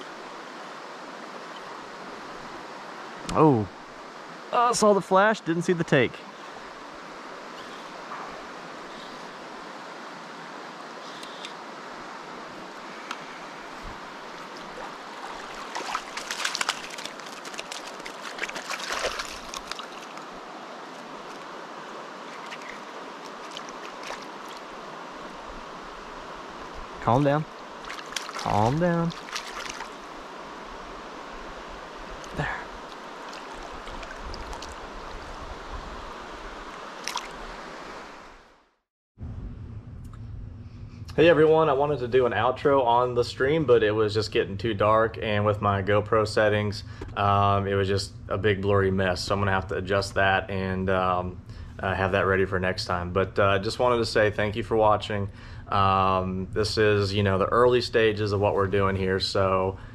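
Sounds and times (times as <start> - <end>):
river water rushing: 0.0 - 38.4
fish splashing at surface: 14.4 - 20.3, 22.3 - 24.7, 27.8 - 30.0, 32.9 - 34.8, 37.0 - 37.4.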